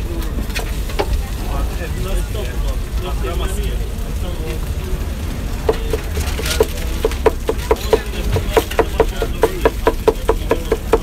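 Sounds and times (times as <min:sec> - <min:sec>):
cleavers chopping on wooden board: 0:05.7 - 0:11.0.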